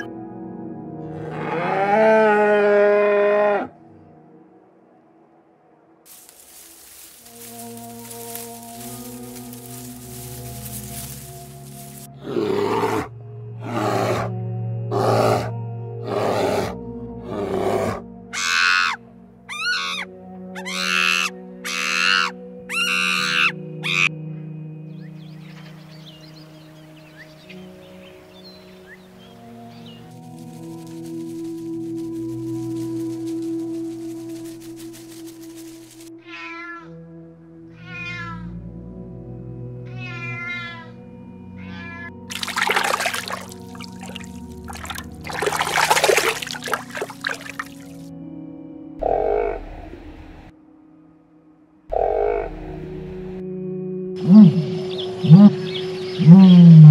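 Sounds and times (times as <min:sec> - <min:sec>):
background music drone: 0:00.0 - 0:56.9
monkey high calls: 0:18.4 - 0:24.1
cat meowing: 0:36.2 - 0:37.0, 0:37.8 - 0:38.5, 0:39.9 - 0:40.9, 0:41.6 - 0:42.1.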